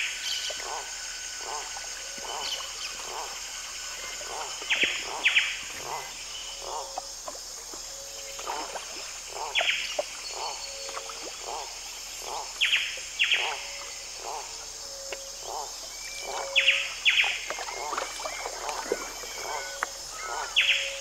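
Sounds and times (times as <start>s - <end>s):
insects buzzing: 0.0s - 21.0s
low repeating animal call: 0.1s - 7.1s, 17.6s - 21.0s.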